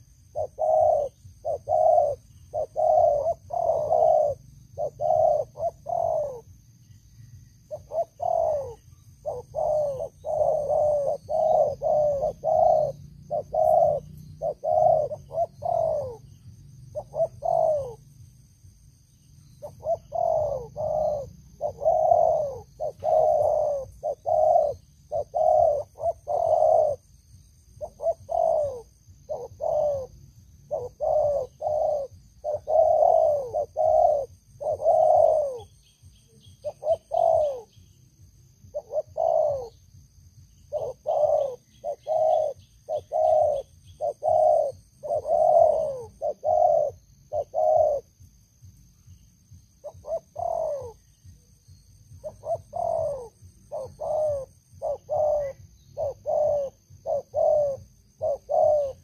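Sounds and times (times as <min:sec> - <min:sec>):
doves cooing: 0:00.0 - 0:06.7, 0:07.6 - 0:19.0, 0:19.6 - 0:59.0.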